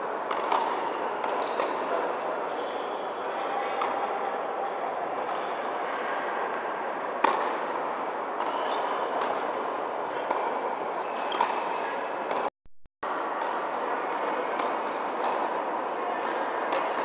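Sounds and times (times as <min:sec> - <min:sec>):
tennis balls struck by racquets: 0:00.2 - 0:01.8, 0:03.8 - 0:04.0, 0:07.2 - 0:10.6, 0:13.4 - 0:17.0.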